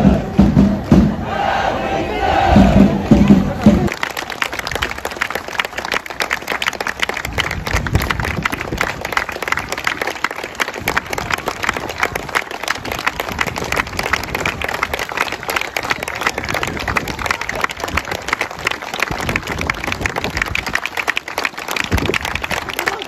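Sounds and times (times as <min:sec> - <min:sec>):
crowd clapping: 0:03.2 - 0:23.0.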